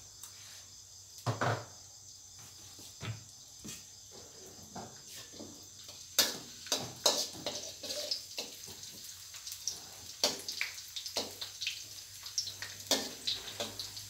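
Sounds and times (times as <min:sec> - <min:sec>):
ginger and garlic sizzling in oil: 0:03.9 - 0:14.0
metal spatula scraping a wok: 0:06.2 - 0:08.6, 0:12.8 - 0:14.0.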